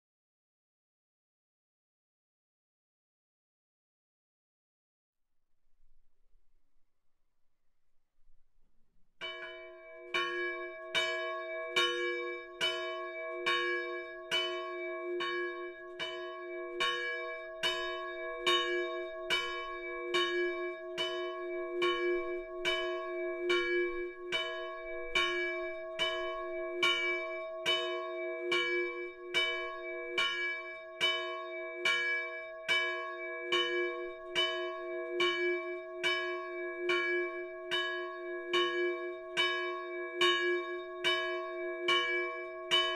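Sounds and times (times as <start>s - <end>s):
church bell ringing: 9.2s - 42.9s.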